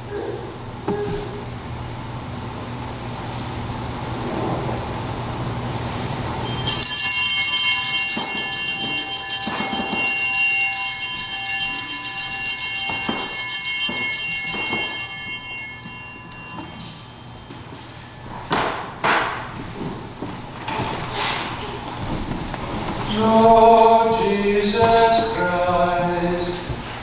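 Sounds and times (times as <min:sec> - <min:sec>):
altar bells shaken: 0:06.4 - 0:18.2.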